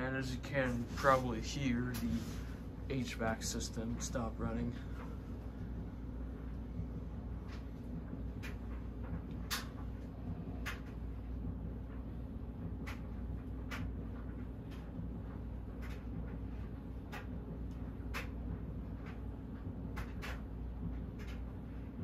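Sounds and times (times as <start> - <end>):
light clicking of fan: 0.0 - 2.2, 8.4 - 11.2
ceiling fan humming: 0.0 - 22.0.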